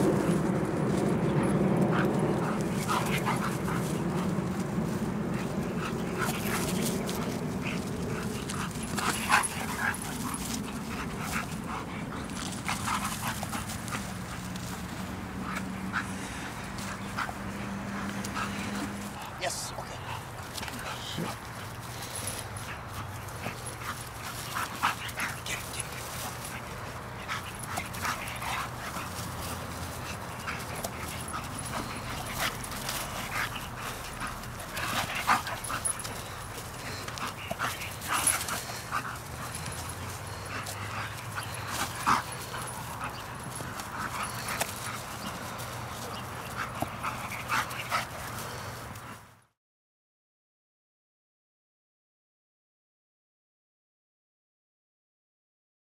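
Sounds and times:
dogs yipping and whining: 0.9s - 14.3s, 21.7s - 48.8s.

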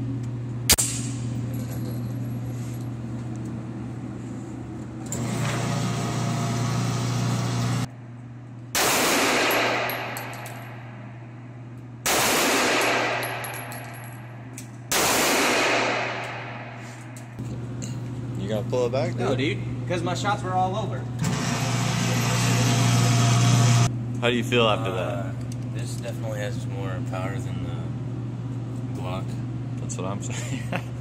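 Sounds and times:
low hum: 0.0s - 29.8s
pistol shots: 8.8s - 10.4s, 12.0s - 13.7s, 14.9s - 16.6s.

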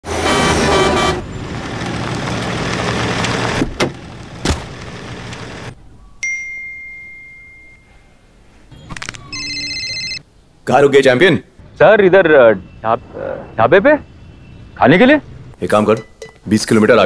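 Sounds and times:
truck engine and road noise: 0.0s - 7.6s, 11.5s - 17.0s
clear ding: 6.2s - 8.1s.

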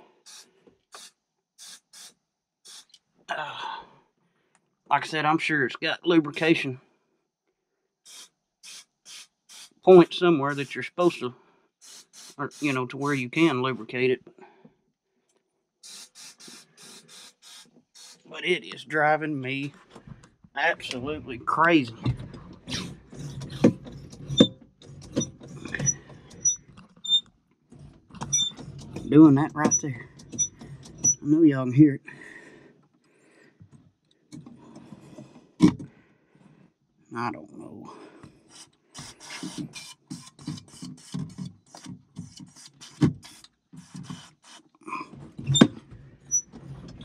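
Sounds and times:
tractor seat suspension squeaking: 21.8s - 31.3s, 38.4s - 47.0s.

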